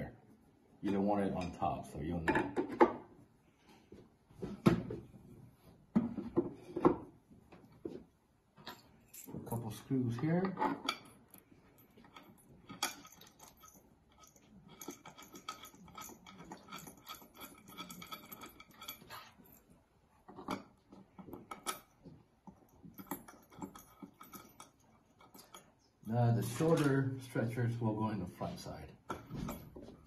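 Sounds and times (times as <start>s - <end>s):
screws clicking and clinking: 8.6s - 19.7s, 20.3s - 25.9s.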